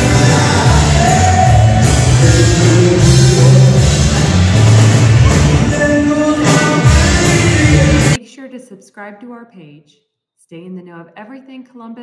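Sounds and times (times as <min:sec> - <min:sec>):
live rock band playing: 0:00.0 - 0:08.2
person singing: 0:00.0 - 0:08.2.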